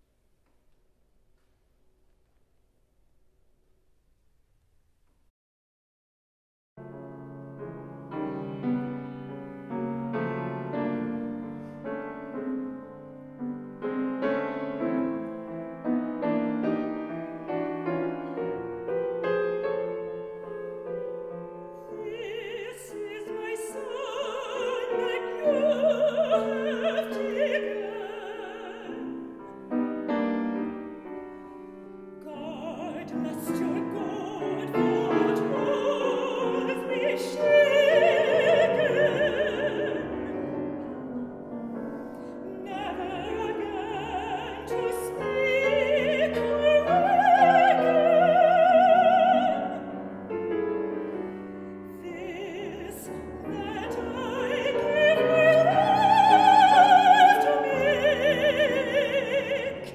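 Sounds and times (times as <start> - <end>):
grand piano playing: 6.8 - 59.9
woman singing operatically: 21.9 - 29.2, 32.2 - 41.0, 42.5 - 50.0, 51.9 - 59.9.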